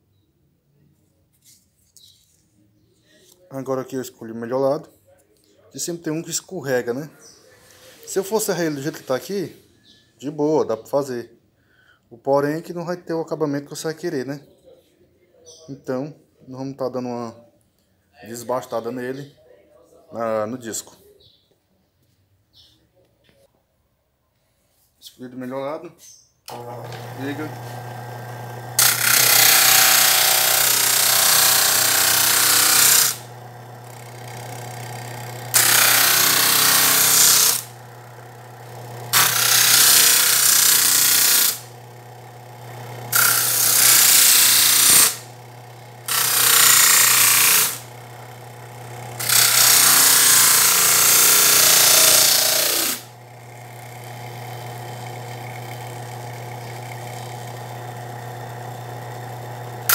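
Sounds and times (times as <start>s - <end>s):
circular saw humming: 26.5s - 59.9s
saw cutting wood roar: 26.5s - 59.9s.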